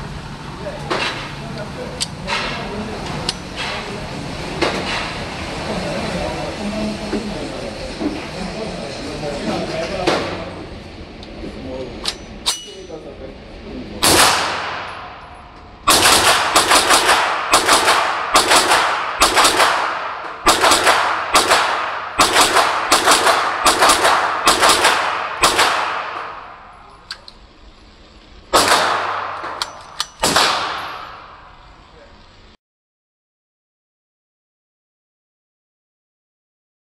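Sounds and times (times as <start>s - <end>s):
pistol shots ringing indoors: 14.0s - 26.8s, 28.5s - 31.6s.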